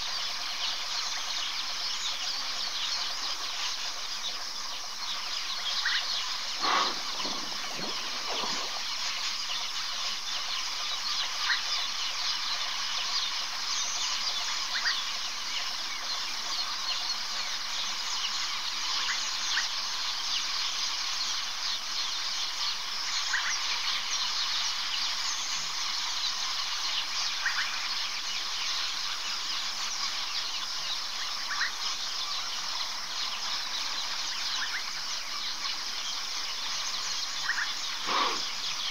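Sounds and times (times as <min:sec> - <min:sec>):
insect chirps: 0:00.0 - 0:38.9
insects chorus: 0:00.0 - 0:38.9
rough low sounds: 0:06.5 - 0:09.6.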